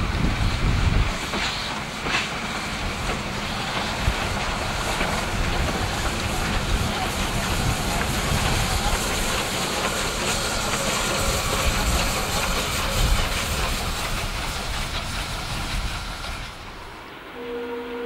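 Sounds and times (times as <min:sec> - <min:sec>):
wheels rumbling on rails: 0:00.0 - 0:17.1
steam hissing: 0:00.0 - 0:17.8
horn-like tone: 0:17.4 - 0:18.0.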